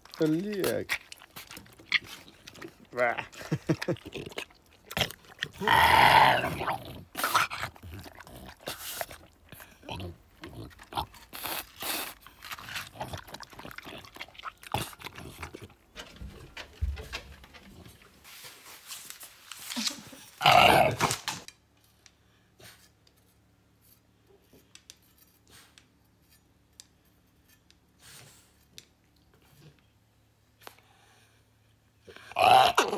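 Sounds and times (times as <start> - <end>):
dog grunting and snuffling: 0.1 - 15.8.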